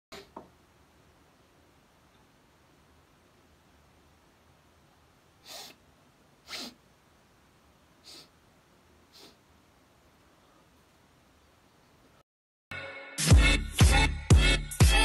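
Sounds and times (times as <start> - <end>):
faint room hiss: 0.2 - 12.2
man's sharp breaths: 5.4 - 5.8, 6.4 - 6.8, 8.0 - 8.3, 9.1 - 9.4.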